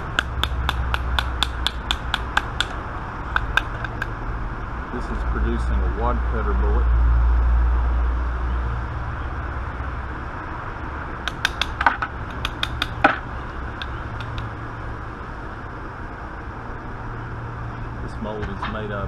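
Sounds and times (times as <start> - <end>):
steady low rumble: 0.0 - 19.0
metal clicks and taps: 0.1 - 4.1, 11.3 - 13.2, 13.8 - 14.5.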